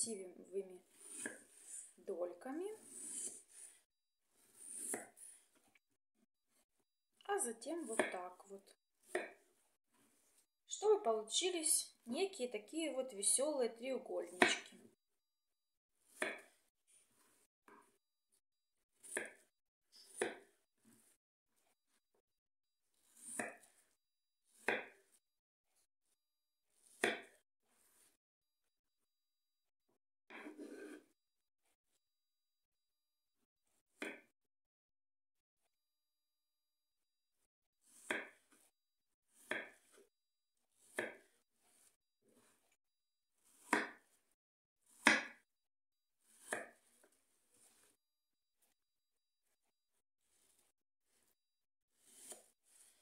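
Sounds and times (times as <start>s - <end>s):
knife slicing apple: 0.9s - 1.8s, 2.7s - 3.7s, 4.4s - 5.3s, 14.3s - 14.9s, 16.1s - 16.6s, 19.0s - 20.5s, 23.0s - 23.8s, 24.5s - 25.1s, 26.8s - 28.0s, 37.9s - 38.7s, 39.4s - 40.0s, 40.8s - 42.5s, 43.4s - 44.1s, 44.9s - 45.4s, 46.2s - 47.0s, 52.0s - 53.0s.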